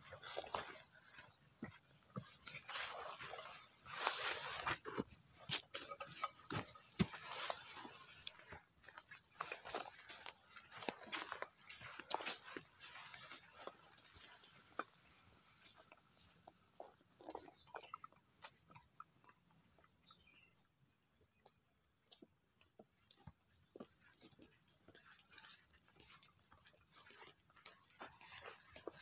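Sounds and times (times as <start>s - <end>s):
footsteps on grass: 0.0s - 16.0s, 23.2s - 29.0s
insects trilling: 0.0s - 29.0s.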